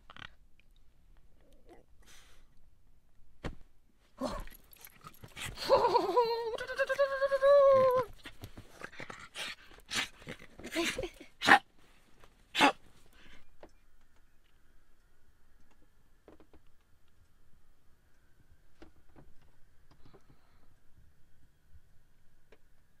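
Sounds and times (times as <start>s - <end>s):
dog grunting and calling: 12.6s - 12.8s.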